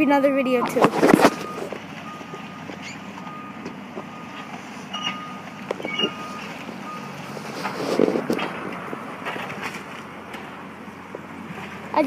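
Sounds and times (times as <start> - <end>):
reversing alarm beeping: 0.0 - 7.3.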